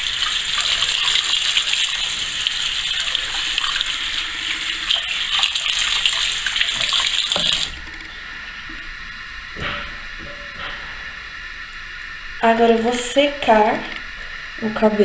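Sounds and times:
tap water running into sink: 0:00.0 - 0:08.1.

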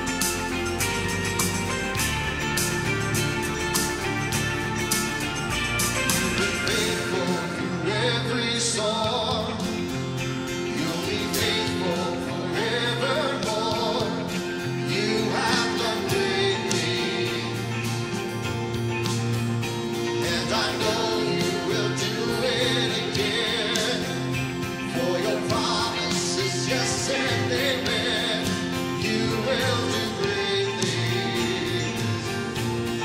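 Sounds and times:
band accompaniment: 0:00.0 - 0:33.0
voices singing: 0:06.1 - 0:18.3, 0:19.9 - 0:33.0.

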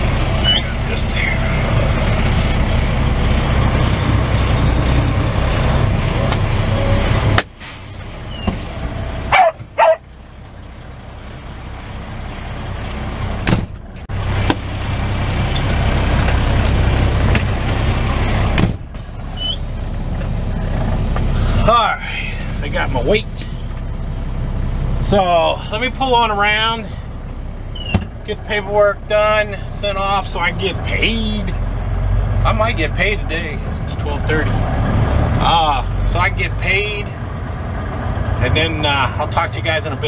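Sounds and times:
truck idling low rumble: 0:00.0 - 0:40.0
sharp clicks with squeaks: 0:08.3 - 0:08.6, 0:19.3 - 0:19.6, 0:27.7 - 0:28.1.

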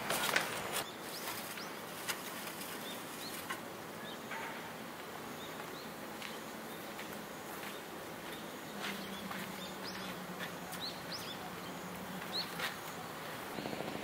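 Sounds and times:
steady background hiss: 0:00.0 - 0:14.0
bird chirps: 0:07.7 - 0:14.0.

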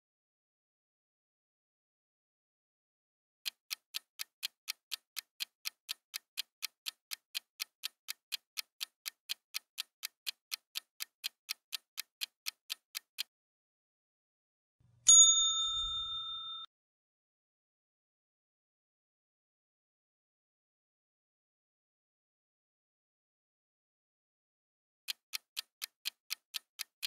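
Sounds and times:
clock ticking: 0:03.4 - 0:13.3, 0:25.1 - 0:27.0
bell ding: 0:15.1 - 0:16.7.

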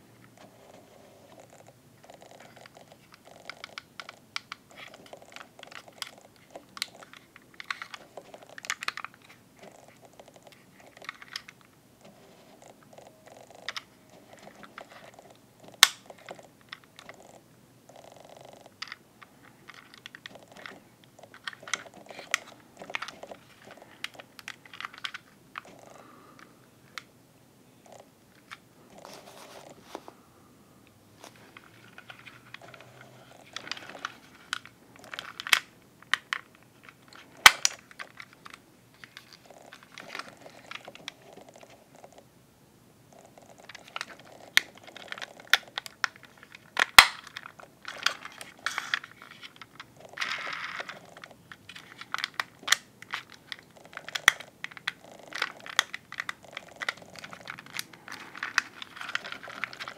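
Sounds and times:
soft handling rustle: 0:00.0 - 0:17.4, 0:27.8 - 0:42.3, 0:43.4 - 0:59.9
plastic clicks and snaps: 0:15.6 - 0:17.2, 0:33.5 - 0:41.8, 0:43.6 - 0:59.9.

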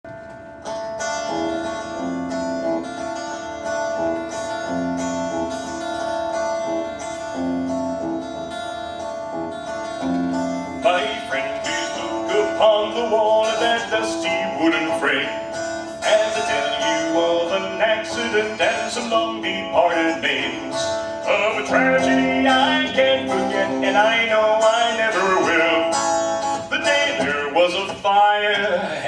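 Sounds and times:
electric guitar playing: 0:00.1 - 0:29.0
man singing: 0:10.8 - 0:29.0.

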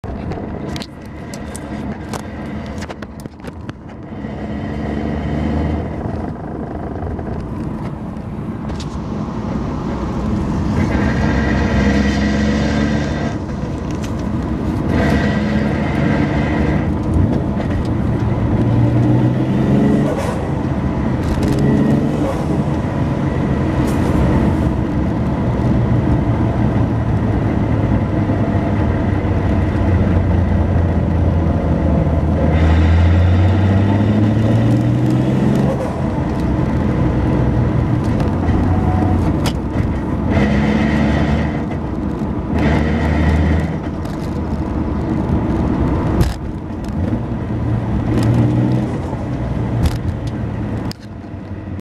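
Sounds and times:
car engine drone in cabin: 0:00.0 - 0:51.8
transmission noise: 0:20.5 - 0:51.8.

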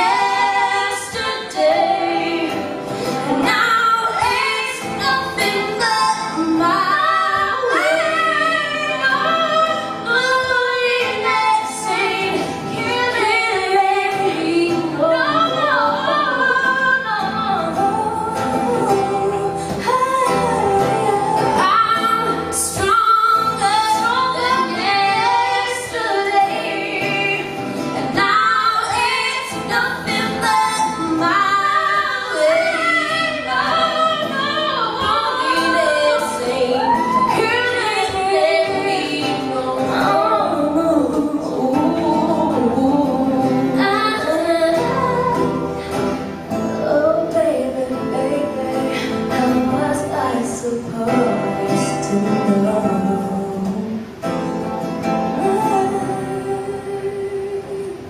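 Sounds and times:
strummed acoustic guitar: 0:00.0 - 0:58.0
women singing a duet: 0:00.0 - 0:58.0.

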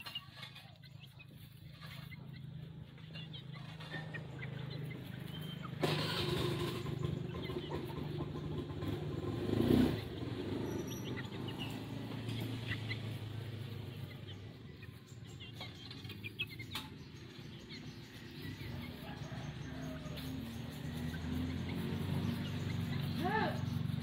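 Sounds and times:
high bird chirps: 0:10.1 - 0:24.0.

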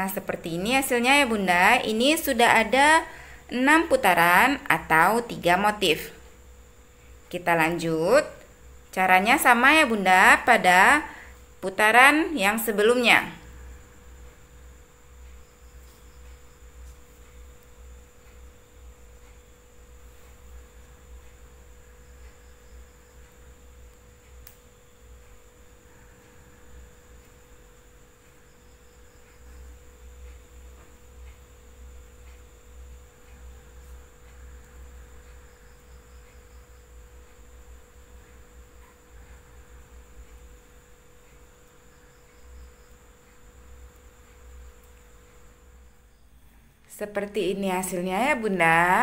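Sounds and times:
faint electrical hum: 0:00.0 - 0:49.0
faint high whine: 0:00.0 - 0:49.0
faint soft ticks: 0:15.2 - 0:25.5, 0:27.1 - 0:39.4.

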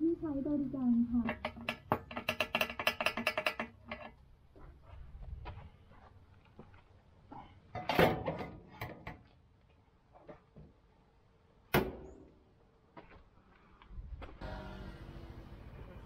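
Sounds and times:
hard parts knocking and clattering: 0:01.1 - 0:04.2.

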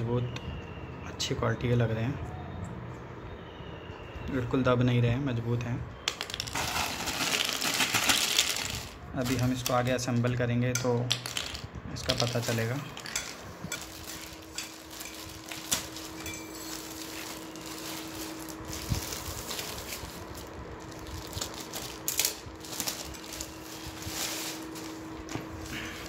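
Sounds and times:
faint steady hum: 0:00.0 - 0:26.0
plastic wrapping crinkling: 0:06.2 - 0:10.2, 0:11.2 - 0:26.0.

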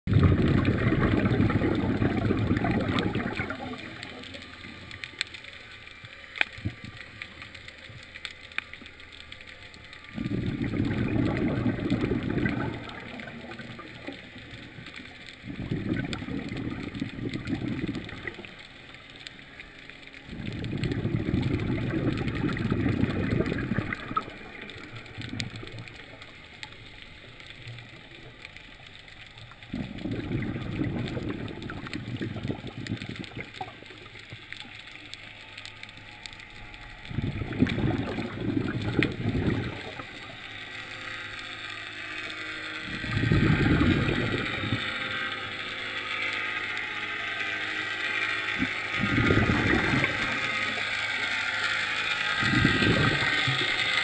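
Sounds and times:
diver's exhaled bubbles: 0:00.1 - 0:04.8, 0:10.1 - 0:14.3, 0:15.4 - 0:18.5, 0:20.3 - 0:26.4, 0:29.6 - 0:34.0, 0:37.1 - 0:40.3, 0:42.8 - 0:45.0, 0:48.6 - 0:50.9, 0:52.4 - 0:54.0
faint clicks: 0:00.6 - 0:54.0.

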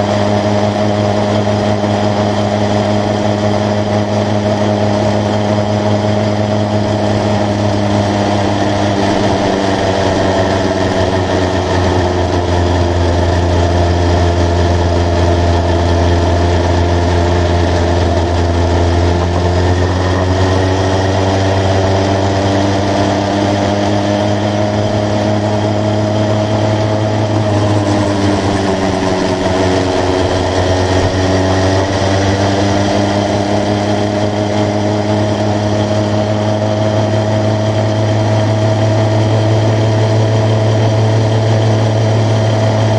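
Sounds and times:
small motorbike engine running: 0:00.0 - 0:42.9.

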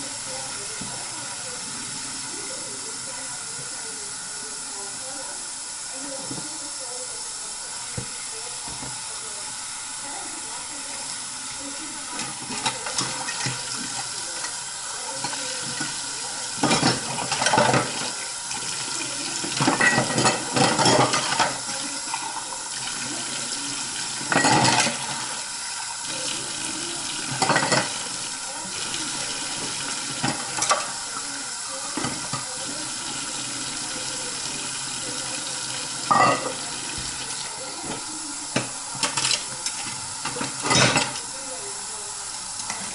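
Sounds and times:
faucet running into a sink: 0:00.0 - 0:42.9
dishes clinking together: 0:16.6 - 0:18.1, 0:19.4 - 0:22.3, 0:24.2 - 0:25.1, 0:27.3 - 0:28.1, 0:29.6 - 0:31.0, 0:36.0 - 0:37.1, 0:37.8 - 0:41.3.

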